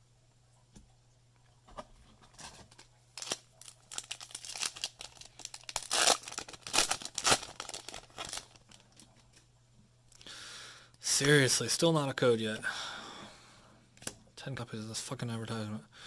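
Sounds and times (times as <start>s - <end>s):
foil wrapper tearing and crinkling: 2.4s - 9.2s.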